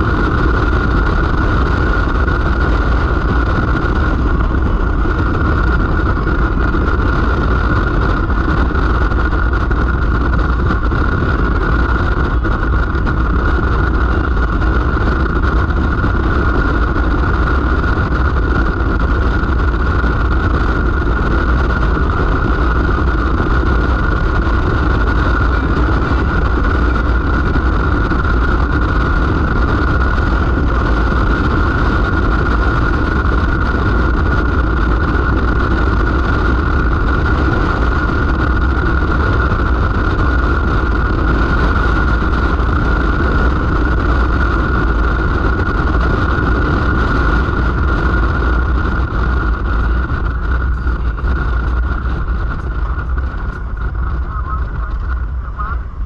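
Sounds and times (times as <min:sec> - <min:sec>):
motorcycle engine drone: 0:00.0 - 0:56.0
steady high hum: 0:00.0 - 0:56.0
wind noise: 0:00.0 - 0:56.0.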